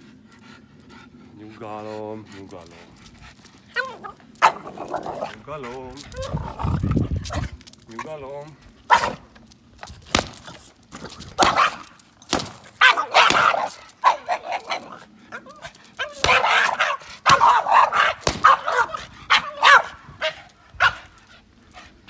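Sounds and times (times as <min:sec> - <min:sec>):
puppy barking and yipping: 0:03.7 - 0:04.7, 0:08.9 - 0:09.2, 0:11.4 - 0:11.9, 0:12.7 - 0:21.0.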